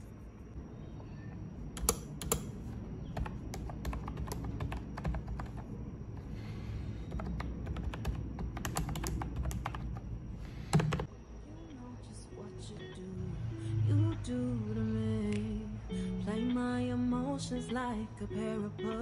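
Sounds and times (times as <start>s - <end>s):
keyboard key clicks: 1.8s - 2.5s.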